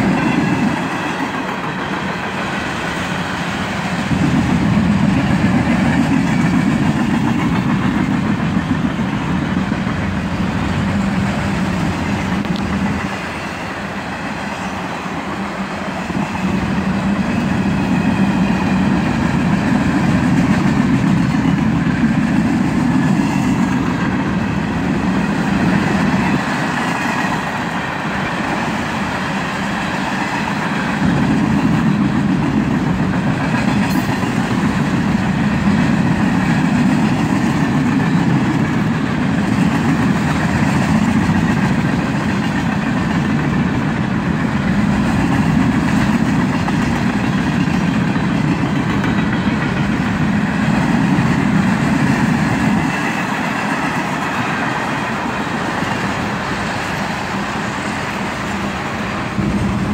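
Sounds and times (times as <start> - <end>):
freight train wheels rumbling: 0.0 - 59.9.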